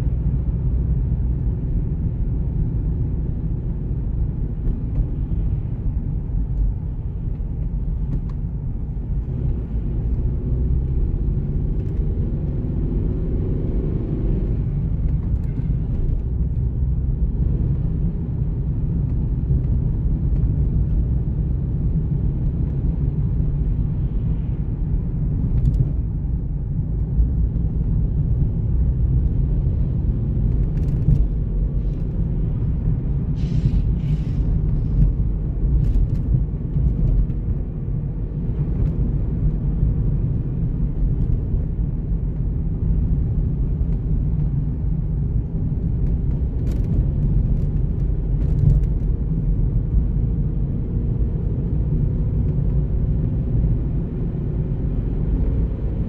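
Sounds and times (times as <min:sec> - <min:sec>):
car cabin road rumble: 0:00.0 - 0:56.0.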